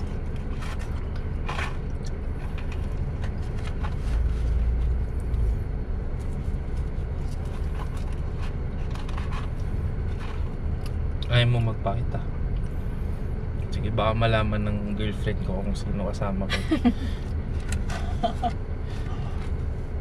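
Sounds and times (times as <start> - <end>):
car cabin rumble: 13.6 - 20.0.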